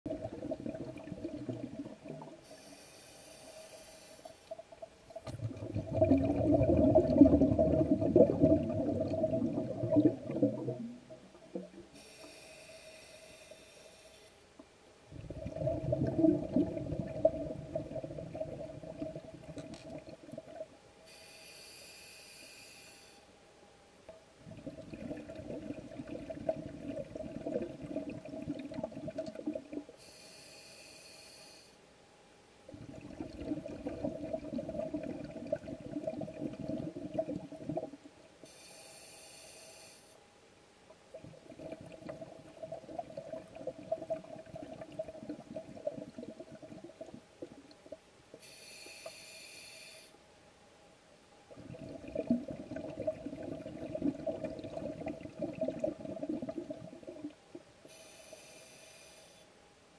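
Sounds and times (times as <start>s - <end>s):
exhaled bubbles rumbling underwater: 0.1s - 2.5s, 4.5s - 12.0s, 15.1s - 20.8s, 24.4s - 29.9s, 32.7s - 38.2s, 41.1s - 48.1s, 51.5s - 57.8s
scuba regulator inhale hiss: 2.4s - 4.6s, 12.0s - 14.4s, 21.0s - 23.3s, 30.0s - 31.8s, 38.4s - 40.2s, 48.4s - 50.2s, 57.9s - 59.6s.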